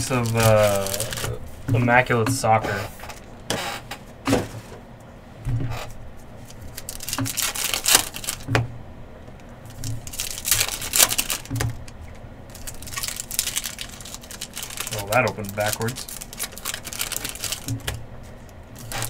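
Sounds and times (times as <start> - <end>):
plastic wrapping tearing and crinkling: 0.0 - 1.5, 5.8 - 8.5, 9.6 - 19.0.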